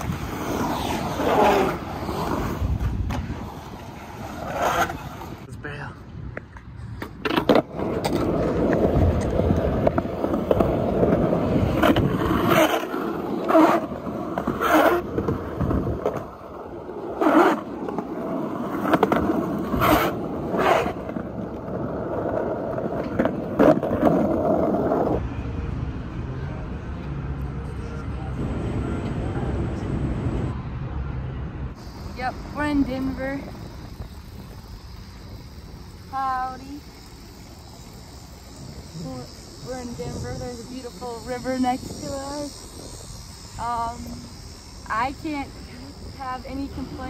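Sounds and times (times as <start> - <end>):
skateboard wheels rolling on concrete: 0.0 - 47.0
skateboard clacking on ground: 6.3 - 25.2.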